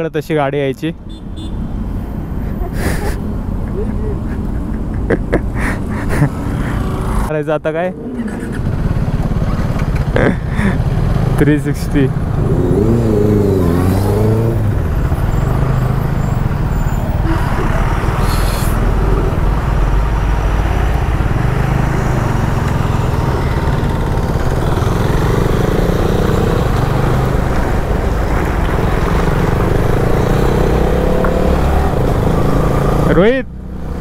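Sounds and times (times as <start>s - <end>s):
motorcycle engine running: 7.9s - 16.4s, 17.2s - 33.2s.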